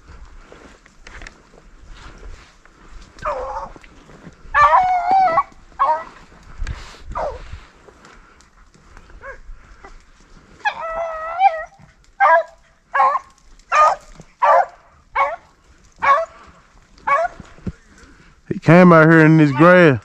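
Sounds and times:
hound baying: 3.1s - 6.4s, 7.1s - 7.4s, 10.6s - 18.2s, 19.2s - 20.0s
dog barking: 11.6s - 15.4s, 16.0s - 16.3s, 17.0s - 17.4s.

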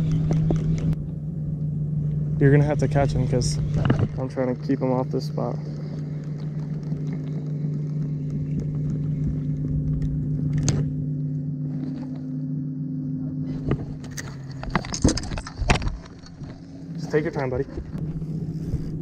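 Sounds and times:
boat motor humming: 0.0s - 19.0s.

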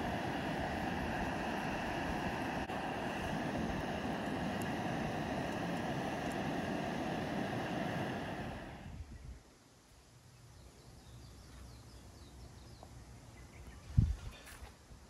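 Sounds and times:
liquid boiling and sizzling in pan: 0.0s - 8.8s.

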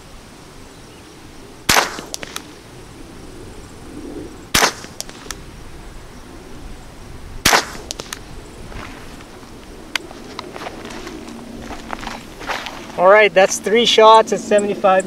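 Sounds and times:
rifle shots: 1.7s - 2.5s, 4.5s - 5.4s, 7.4s - 8.2s.

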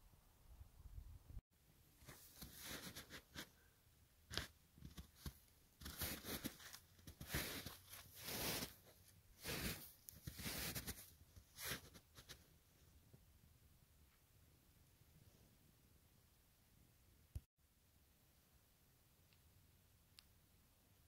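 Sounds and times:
footsteps crunching in snow: 4.9s - 12.3s.

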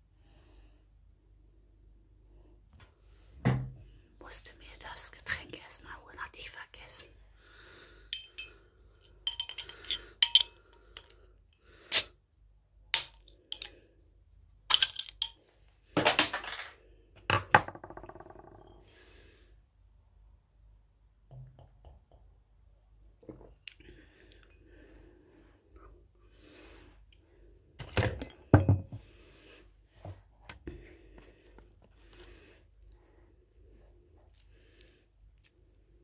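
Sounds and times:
metal cap rattling: 9.2s - 11.1s
bottle opener clinking on cap: 9.3s - 10.5s.

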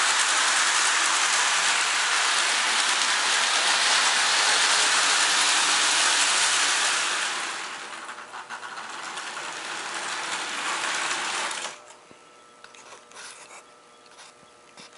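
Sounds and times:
toy train motor whirring: 0.0s - 11.9s
wheels clattering on rails: 0.0s - 12.0s.

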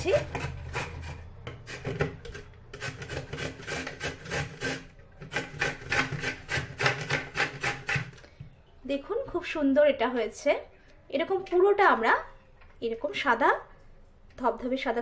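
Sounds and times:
papaya grated on plastic grater: 0.0s - 8.2s.

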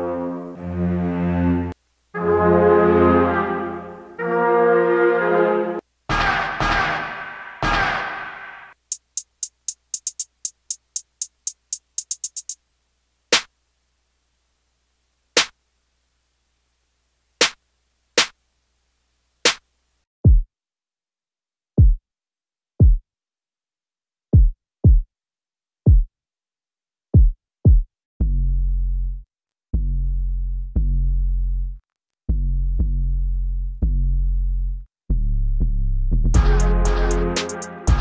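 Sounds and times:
drum machine hi-hat ticks: 6.1s - 12.6s, 13.3s - 13.5s, 21.8s - 22.0s, 22.8s - 23.0s, 24.4s - 25.1s, 25.9s - 26.1s, 27.2s - 27.9s, 36.4s - 38.0s
drum machine snare hits: 6.1s - 12.6s, 20.3s - 20.5s, 21.8s - 22.0s, 22.8s - 23.0s, 24.4s - 25.0s, 25.9s - 26.1s, 27.2s - 27.9s, 36.4s - 38.0s
deep kick drum thumps: 20.2s - 20.5s, 21.8s - 22.0s, 22.8s - 23.0s, 24.4s - 25.1s, 25.9s - 26.1s, 27.2s - 27.9s.

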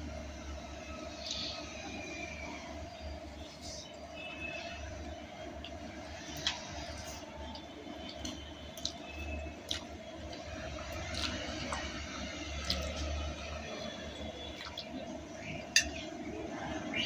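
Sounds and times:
chewing with mouth smacks: 5.6s - 13.5s, 14.4s - 15.0s
noodles slurping: 6.3s - 15.0s.

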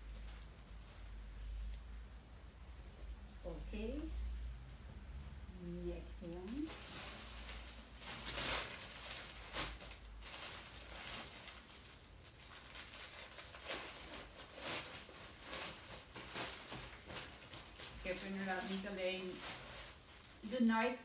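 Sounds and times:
plastic packaging crinkling: 6.4s - 21.0s.

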